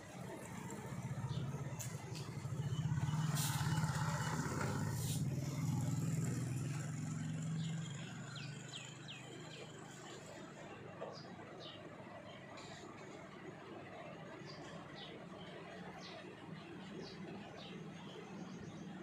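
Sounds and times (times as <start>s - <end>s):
low motor drone: 0.0s - 11.2s.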